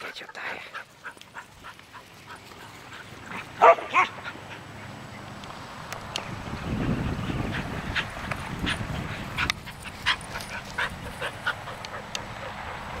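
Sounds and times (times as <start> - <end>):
dog panting: 6.7 - 13.0.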